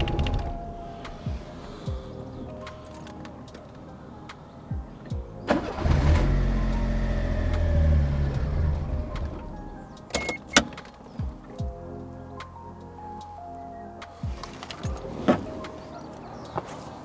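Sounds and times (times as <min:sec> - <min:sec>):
car engine starting and stalling: 0:00.0 - 0:00.8, 0:05.5 - 0:10.8
sharp clicks: 0:00.0 - 0:01.2.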